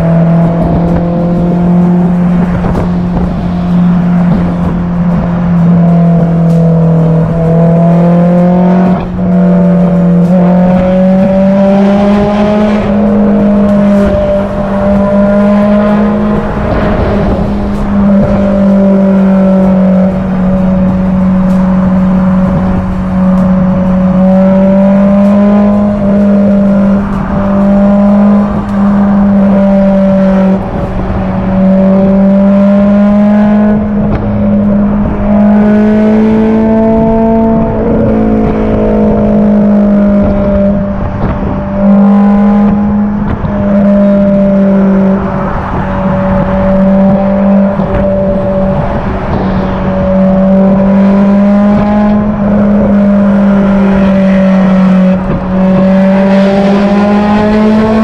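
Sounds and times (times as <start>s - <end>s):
car engine pulling: 0.0s - 58.0s
wind and road noise: 0.0s - 58.0s.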